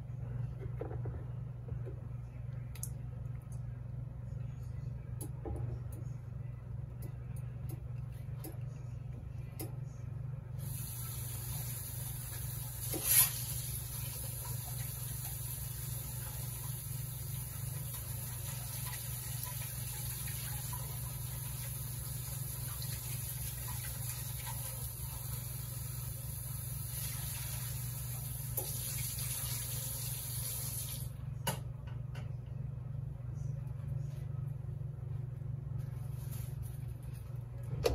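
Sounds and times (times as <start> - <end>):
kitchen tap running: 10.6 - 31.1.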